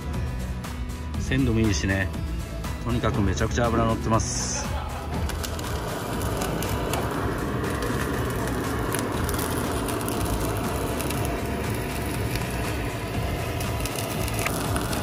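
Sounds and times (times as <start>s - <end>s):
clicks and crackles: 5.2s - 15.0s
low rumble: 5.2s - 15.0s.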